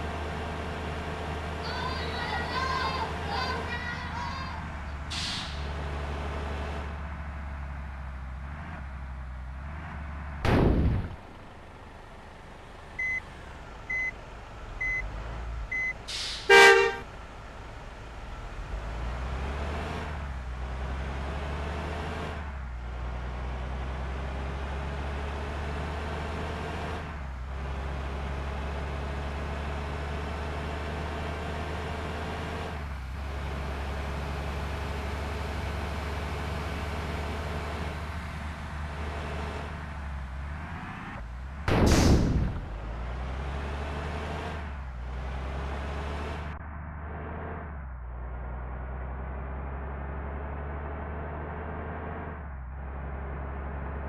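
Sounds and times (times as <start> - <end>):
vehicle running: 0.0 - 54.0
horn toot: 16.4 - 17.0
loud short falling sound: 41.7 - 42.7.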